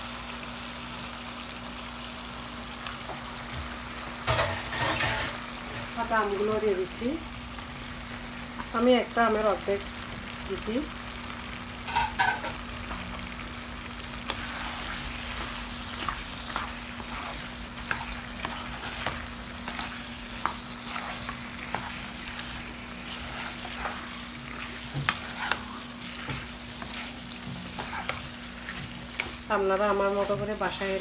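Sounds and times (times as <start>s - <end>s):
food sizzling in a frying pan: 0.0s - 31.0s
wooden spatula scraping a pan: 4.3s - 6.7s, 14.2s - 31.0s.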